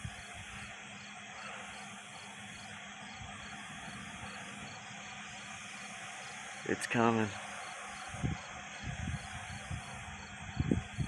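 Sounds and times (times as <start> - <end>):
crickets and insects trilling: 0.0 - 11.0.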